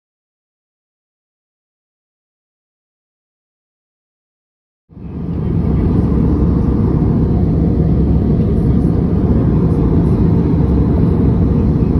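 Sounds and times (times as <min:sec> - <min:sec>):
jet cabin engine and airflow noise: 0:04.9 - 0:11.9.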